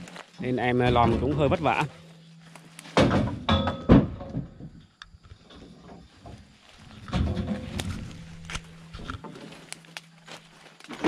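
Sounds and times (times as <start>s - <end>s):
logs knocking together: 0.7s - 1.9s, 2.8s - 9.8s.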